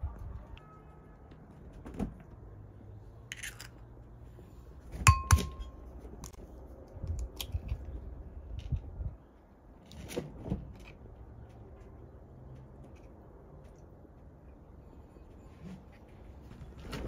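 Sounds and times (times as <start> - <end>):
egg rapped on glass bowl: 5.1 - 5.6
glass ringing: 5.1 - 5.8.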